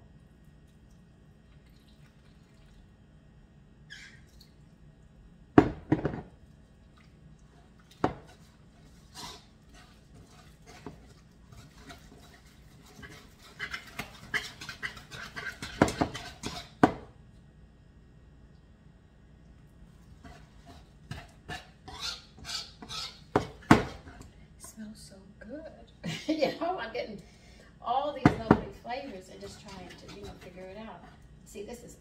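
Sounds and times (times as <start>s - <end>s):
wire whisk beating batter in bowl: 7.9s - 16.9s, 28.2s - 31.3s
whisk knocking against bowl: 11.6s - 17.0s, 28.2s - 31.1s.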